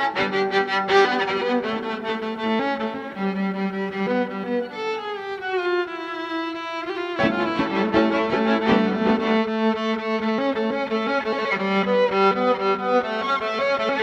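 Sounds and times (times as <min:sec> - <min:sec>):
violin bowed long notes: 0:00.0 - 0:14.0
low sustained string tones: 0:06.9 - 0:13.8.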